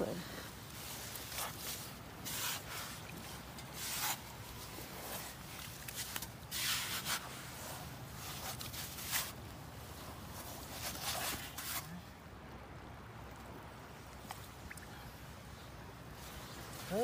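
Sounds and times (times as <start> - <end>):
spade scraping wet sand: 6.0 - 7.5.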